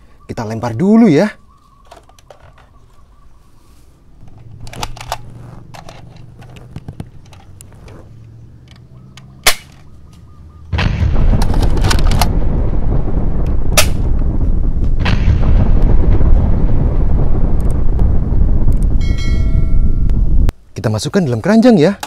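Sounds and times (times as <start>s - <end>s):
sharp cracks: 4.2s - 7.9s, 8.7s - 9.9s, 10.7s - 19.0s
explosion blast rumbling: 10.7s - 20.5s.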